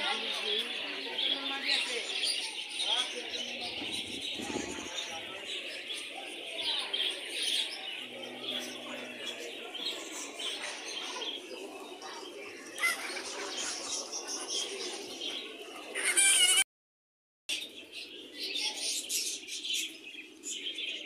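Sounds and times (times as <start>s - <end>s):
small birds chirping: 0.0s - 16.6s, 17.5s - 21.0s
pigeons cooing: 3.5s - 16.0s.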